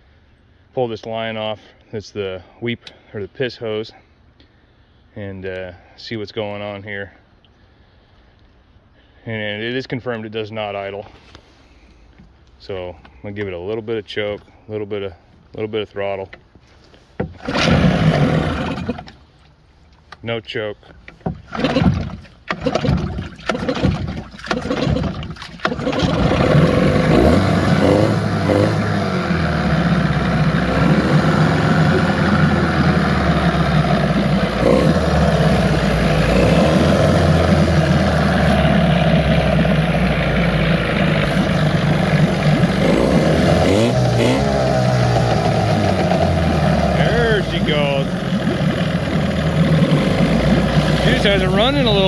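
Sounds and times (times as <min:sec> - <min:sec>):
outboard motor running: 0:17.2 - 0:19.6, 0:21.0 - 0:52.0.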